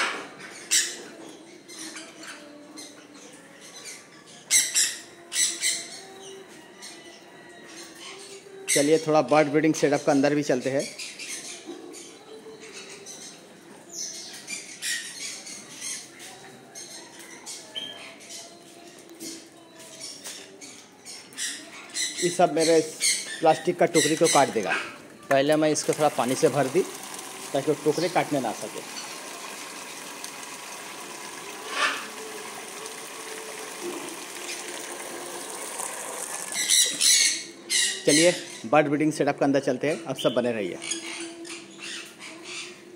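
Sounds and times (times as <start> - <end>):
birds squawking and calling: 0.0 - 39.2, 39.9 - 42.9
parrot squawking: 22.8 - 25.2, 31.6 - 32.3, 36.4 - 38.7
water pouring into plastic container: 25.5 - 36.8.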